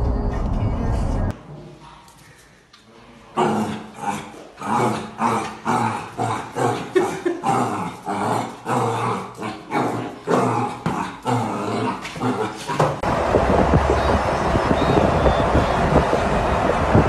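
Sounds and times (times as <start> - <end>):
dog growling: 3.3 - 13.0.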